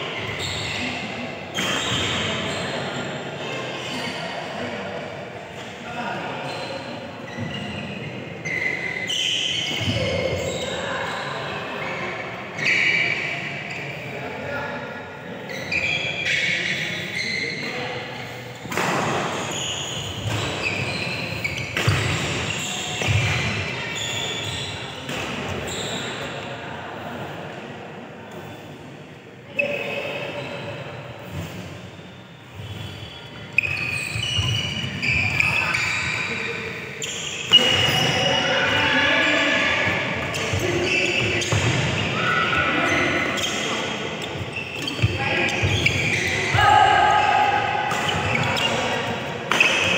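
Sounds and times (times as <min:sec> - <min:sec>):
shoes squeaking: 0:19.2 - 0:26.2, 0:29.5 - 0:49.9
rackets hitting shuttlecock: 0:21.6 - 0:23.5, 0:47.9 - 0:49.9.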